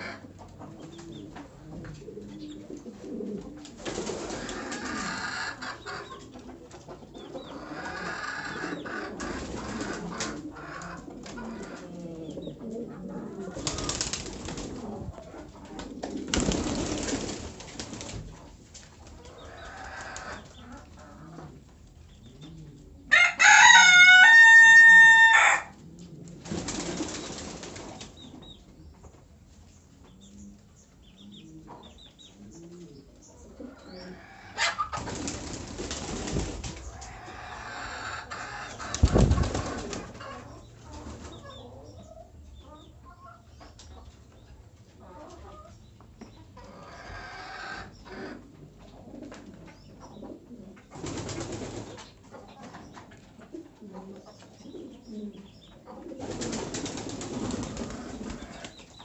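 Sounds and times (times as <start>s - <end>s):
loud held pigeon call: 0.0s - 17.4s, 22.3s - 28.4s, 31.4s - 42.0s, 53.6s - 59.0s
pigeons cooing: 0.0s - 28.9s, 30.1s - 43.4s, 46.6s - 59.0s.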